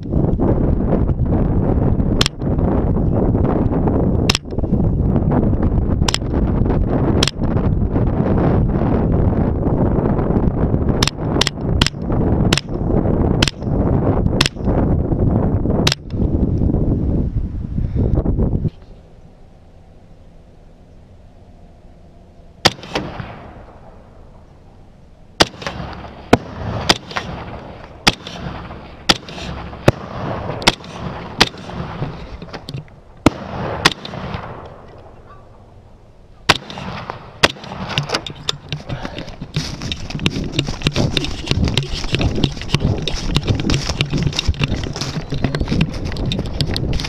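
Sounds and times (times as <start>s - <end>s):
rifle shots: 22.6s - 24.0s, 25.4s - 32.4s, 33.2s - 35.4s, 36.5s - 38.7s
dense rough rustling: 22.6s - 35.6s, 36.4s - 47.0s.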